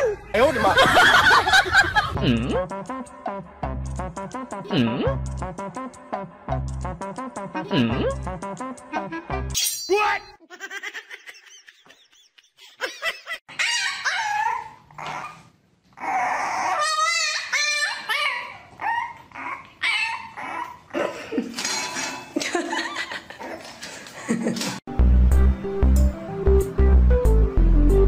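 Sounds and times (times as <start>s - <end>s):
puppy whining and yapping: 13.5s - 20.9s.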